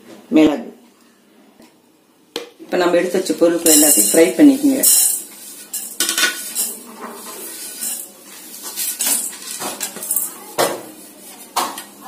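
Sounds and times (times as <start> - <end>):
seeds clattering on metal pan: 3.6 - 10.4.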